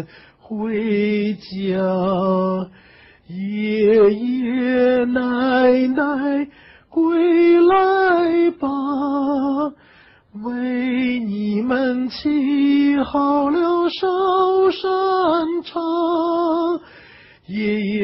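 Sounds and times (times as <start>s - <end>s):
man singing unaccompanied: 0.0s - 18.0s.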